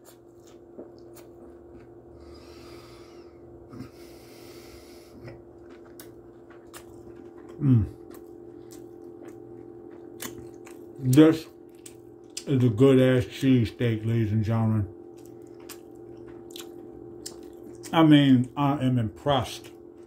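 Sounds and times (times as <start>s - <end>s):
man chewing with wet mouth clicks: 0.0s - 2.3s, 5.1s - 12.5s, 15.1s - 18.0s, 19.6s - 20.0s
faint steady hum: 0.0s - 20.0s
heavy breathing through nose: 2.2s - 5.4s
man humming mmm of pleasure: 7.6s - 8.0s.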